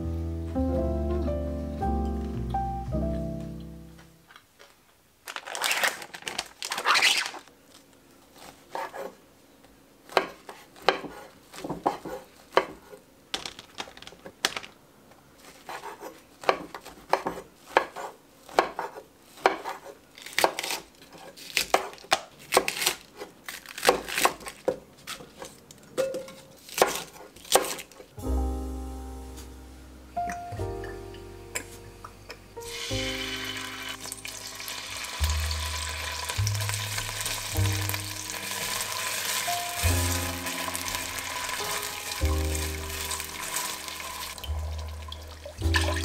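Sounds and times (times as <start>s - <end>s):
plastic film tearing: 5.2s - 7.8s, 20.2s - 25.4s.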